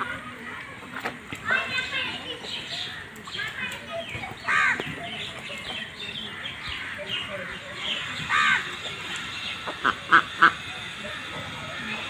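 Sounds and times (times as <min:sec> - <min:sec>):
ducks quacking: 0:06.2 - 0:12.0
soft duck calls: 0:09.6 - 0:10.7.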